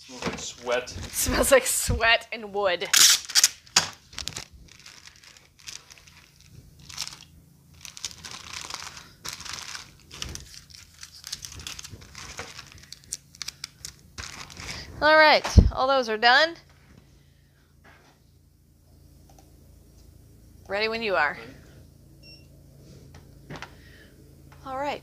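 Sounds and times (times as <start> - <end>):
plastic tearing: 2.9 - 14.9
plastic bags crinkling: 3.0 - 14.9.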